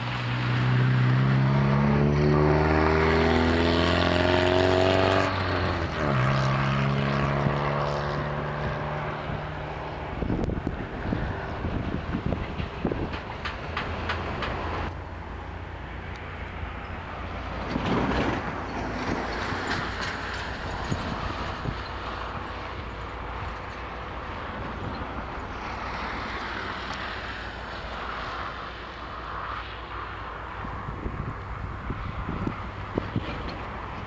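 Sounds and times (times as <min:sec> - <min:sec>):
freight train rumbling: 0:00.0 - 0:29.5, 0:30.1 - 0:34.0
wheel clatter on rails: 0:11.5 - 0:15.2, 0:16.8 - 0:27.0, 0:32.9 - 0:34.0.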